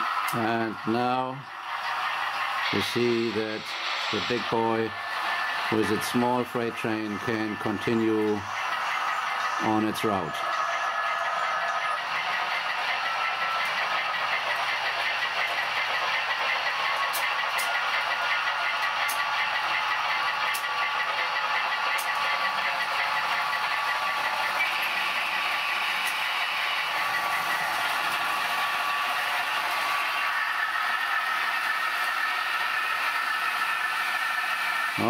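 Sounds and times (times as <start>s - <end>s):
model train wheels rattling: 0.0s - 35.0s.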